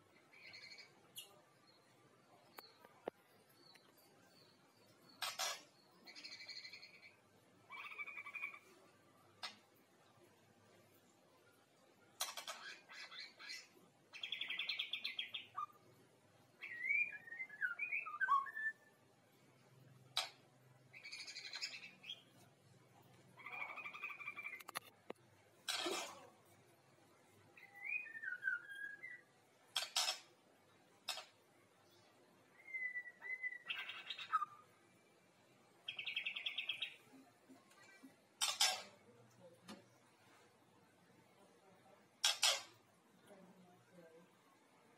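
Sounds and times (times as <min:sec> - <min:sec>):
bird singing trills and whistles: 0:12.4 - 0:15.8, 0:16.6 - 0:18.9, 0:27.6 - 0:29.9, 0:32.5 - 0:34.7, 0:35.9 - 0:37.0.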